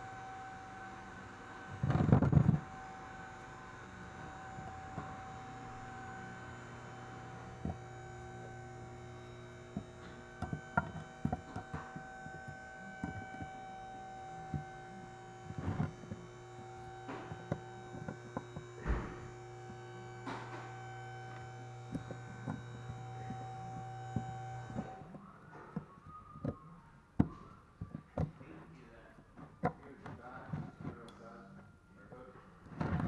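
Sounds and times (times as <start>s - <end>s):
electrical hum: 0.0s - 33.0s.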